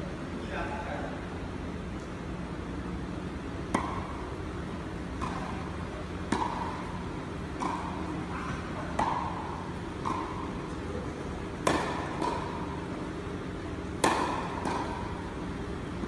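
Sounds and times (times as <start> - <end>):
tennis ball pocks: 5.1 - 10.8, 11.5 - 13.2, 13.9 - 15.3.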